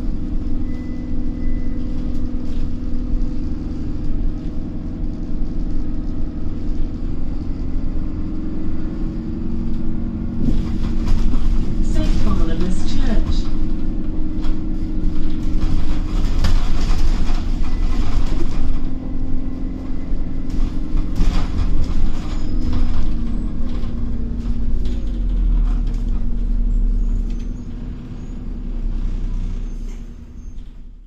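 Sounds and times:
bus diesel engine rumble: 0.0s - 31.0s
knocks and rattles: 10.3s - 26.7s.

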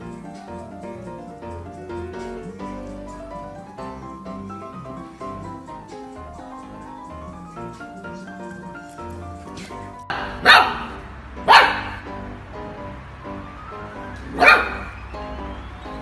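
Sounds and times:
background music: 0.0s - 16.0s
puppy barking sharply: 9.6s - 12.1s, 14.2s - 15.0s.

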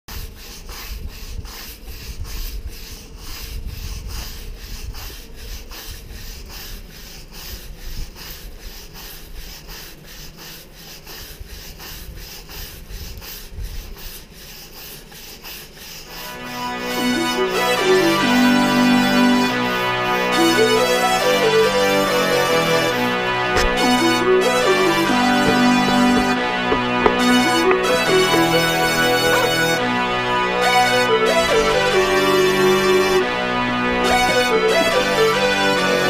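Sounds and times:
paint roller scraping on wall: 20.3s - 30.8s, 31.4s - 36.0s.

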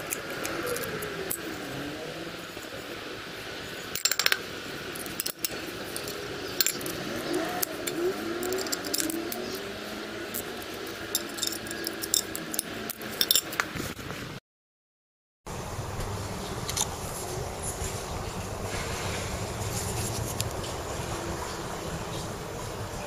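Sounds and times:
metallic clicks and clinks: 5.0s - 7.0s, 7.6s - 9.6s, 10.3s - 13.7s
steady background hum: 15.5s - 23.0s.

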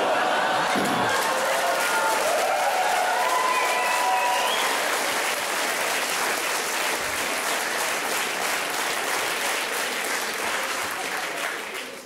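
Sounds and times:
audience cheer: 0.0s - 5.4s
audience applauding: 0.0s - 12.0s.

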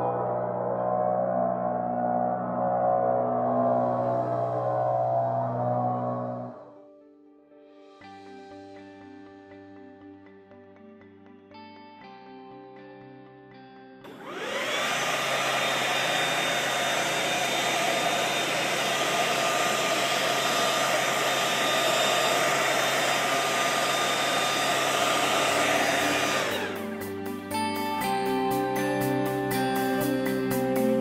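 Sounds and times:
electric leaf blower whine: 0.0s - 6.8s, 14.1s - 28.4s.

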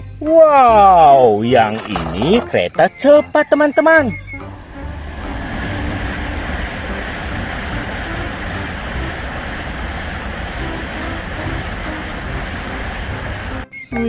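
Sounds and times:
bullet train passing: 4.2s - 13.6s
thin high whine: 4.4s - 13.6s.

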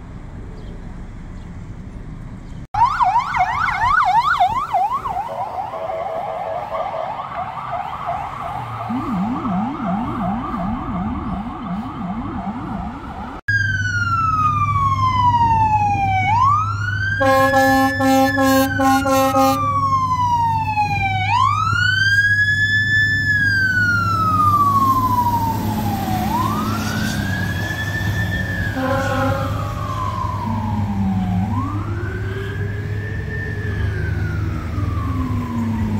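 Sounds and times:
low engine hum: 0.0s - 2.7s
fire engine siren winding: 8.8s - 35.9s
short horn blasts: 17.2s - 19.6s, 28.8s - 29.7s.

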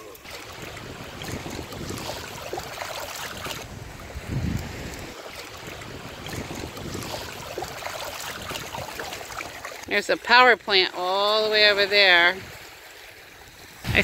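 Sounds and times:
small waves lapping: 0.0s - 14.0s
wind buffeting microphone: 0.2s - 9.6s, 13.5s - 14.0s.

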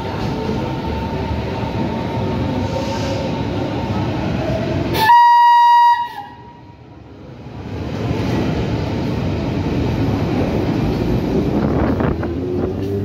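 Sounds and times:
train rumbling: 0.0s - 13.0s
train horn blast: 5.0s - 6.6s.

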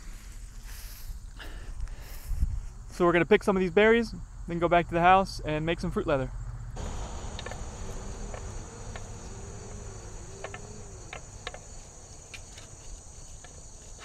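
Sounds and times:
insects chorus: 6.0s - 14.0s.

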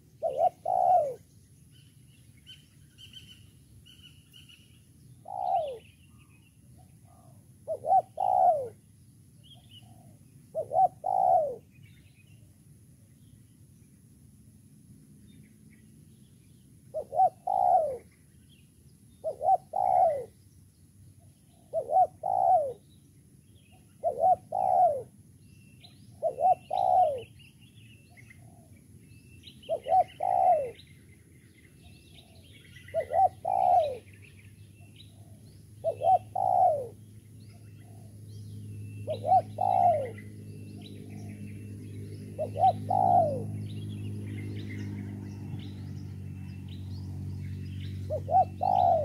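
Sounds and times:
dove cooing: 0.0s - 1.2s, 5.2s - 6.3s, 7.0s - 8.8s, 9.8s - 11.7s, 16.9s - 18.1s, 19.2s - 20.4s, 21.5s - 22.8s, 23.8s - 25.2s, 26.1s - 27.4s, 28.3s - 28.8s, 29.7s - 30.8s, 32.2s - 34.1s, 35.0s - 37.0s, 39.0s - 41.4s, 42.2s - 43.7s, 48.1s - 49.0s
small birds chirping faintly: 0.0s - 49.0s.

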